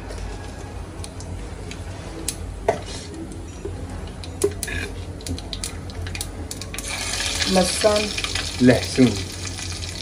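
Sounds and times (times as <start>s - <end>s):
seeds crackling in hot oil: 4.6s - 10.0s.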